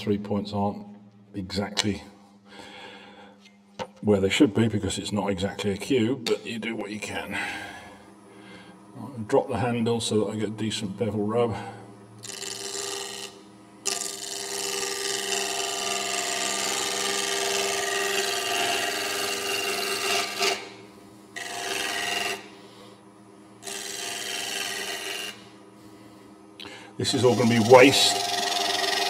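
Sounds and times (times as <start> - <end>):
gouge cutting wood on lathe: 12.2 - 20.7, 21.4 - 22.4, 23.6 - 25.4, 27.0 - 29.0
lathe running: 12.2 - 20.8, 21.4 - 22.6, 23.6 - 25.4, 27.0 - 29.0.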